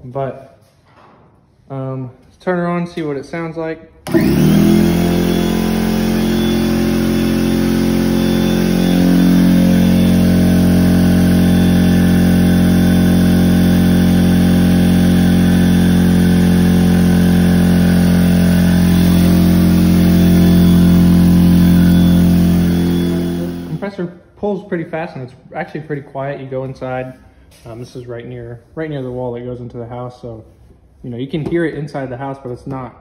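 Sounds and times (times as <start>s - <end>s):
air compressor running: 4.0s - 23.9s.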